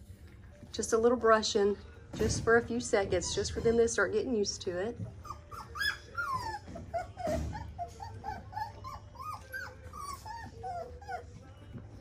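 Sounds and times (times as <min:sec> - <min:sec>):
puppies whimpering and yipping: 0:03.0 - 0:04.3, 0:04.9 - 0:12.0.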